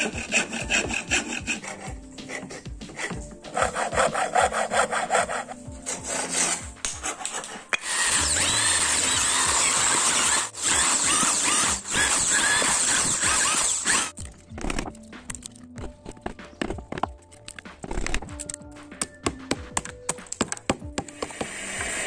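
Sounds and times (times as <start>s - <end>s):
electric drill boring wood: 0.0s - 2.4s, 7.7s - 14.2s, 21.1s - 22.0s
saw cutting wood: 0.0s - 14.2s, 21.1s - 22.0s.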